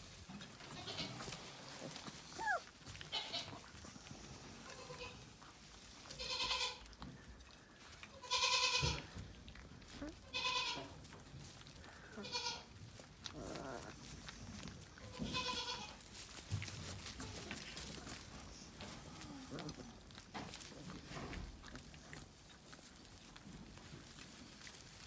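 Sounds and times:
puppies whining: 2.0 - 3.9, 13.2 - 14.6.

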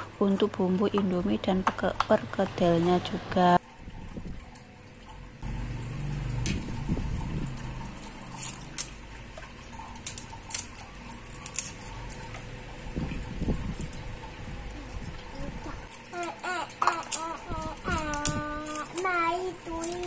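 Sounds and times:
dry skins crackling being peeled: 7.5 - 20.0.

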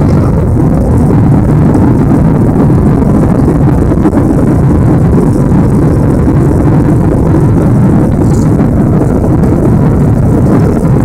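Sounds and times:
jet engines at takeoff thrust: 0.0 - 11.0
wheels rumbling on runway: 0.0 - 11.0.

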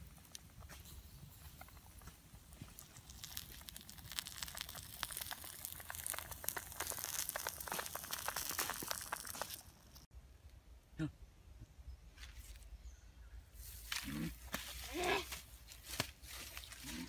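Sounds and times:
chicken skin crackling and sizzling: 1.6 - 10.1.

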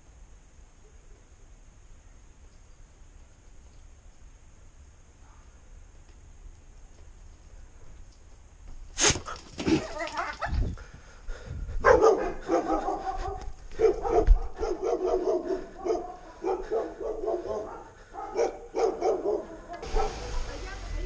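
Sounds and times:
dogs barking: 11.8 - 20.9.

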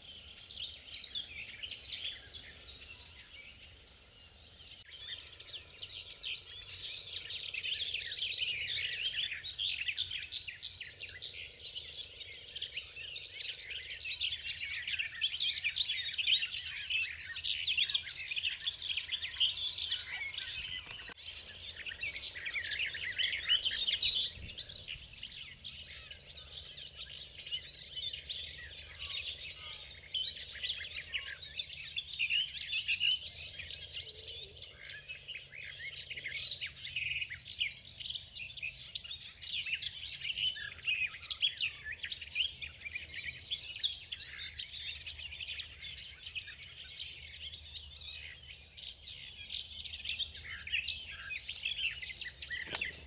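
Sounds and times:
warbler singing: 0.0 - 53.0.

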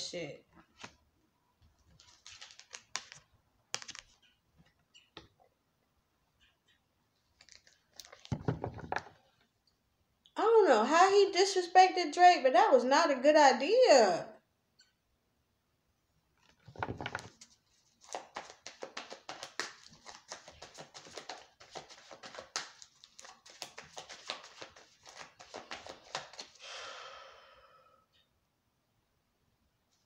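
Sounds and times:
cards being shuffled: 0.8 - 1.0, 1.8 - 4.3, 7.4 - 9.1, 16.4 - 26.6.

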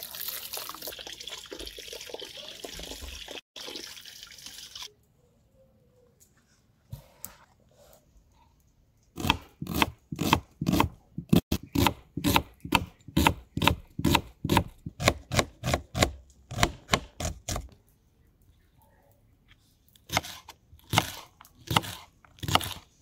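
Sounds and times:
knife chopping on wooden board: 9.2 - 17.7, 20.1 - 22.8.

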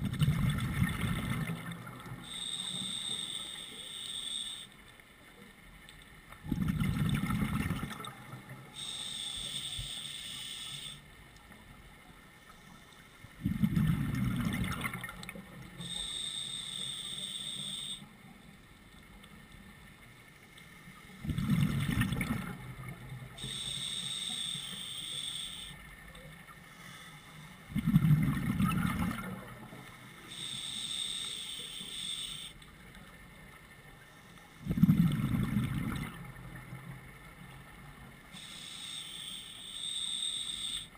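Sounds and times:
exhaled bubbles rushing: 0.0 - 2.2, 6.4 - 8.5, 13.4 - 15.3, 21.2 - 23.0, 27.7 - 29.7, 34.7 - 36.4
regulator hiss on inhale: 2.2 - 4.8, 8.7 - 11.1, 15.8 - 18.1, 23.4 - 25.8, 26.6 - 27.7, 29.9 - 32.6, 34.0 - 34.8, 38.3 - 40.9.

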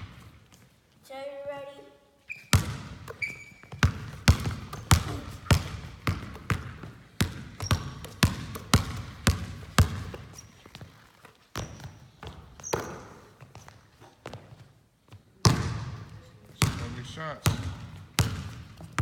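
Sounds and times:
high squeaks: 2.2 - 3.8
basketball bouncing on hardwood floor: 2.5 - 19.0.

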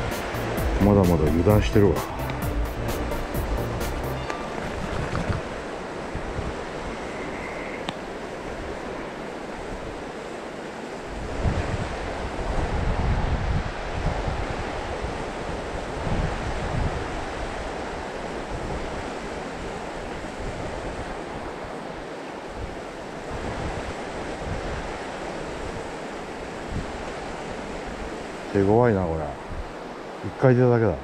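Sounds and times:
stream water flowing: 0.0 - 11.2
wind gusting on microphone: 4.2 - 10.2, 10.9 - 31.0.

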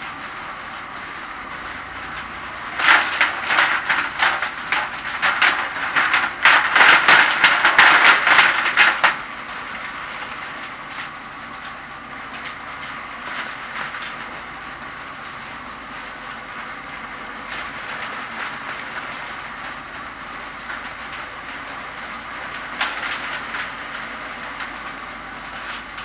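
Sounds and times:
leaf shredder motor running: 0.0 - 26.0
crackling clatter of leaves chopped: 2.0 - 14.5, 17.4 - 26.0.

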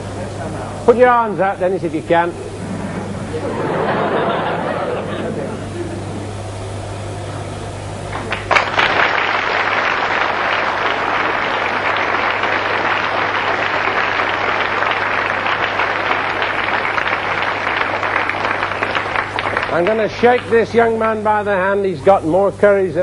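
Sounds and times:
audience applauding: 8.1 - 20.6.

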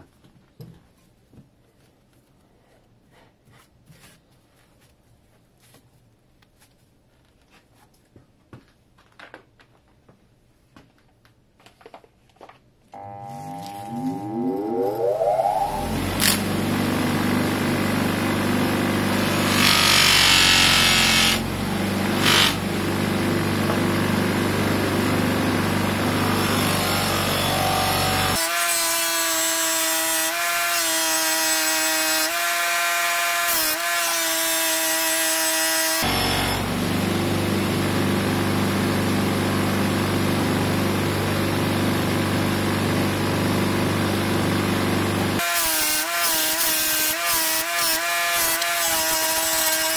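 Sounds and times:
higher wavering tones: 13.0 - 17.0
bench grinder motor running: 15.0 - 28.4.

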